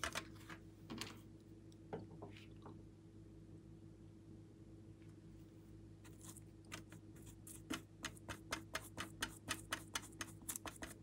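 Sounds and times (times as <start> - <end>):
paintbrush dabbing in paint pan: 6.1 - 11.0.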